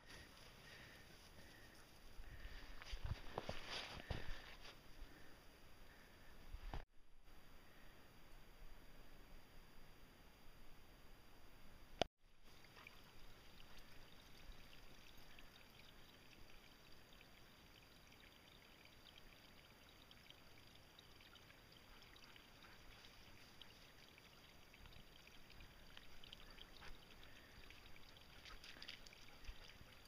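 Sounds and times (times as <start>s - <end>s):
soft crackles: 0.0s - 6.8s, 20.6s - 30.0s.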